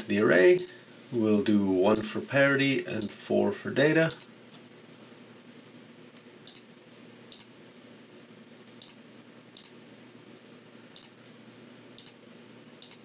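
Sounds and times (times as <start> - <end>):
faint background hum: 0.0 - 13.0
computer mouse clicks: 0.6 - 0.8, 4.1 - 4.3, 6.2 - 6.7, 7.3 - 7.5, 8.7 - 9.0, 9.6 - 9.8, 10.9 - 11.2, 12.0 - 12.2, 12.8 - 13.0.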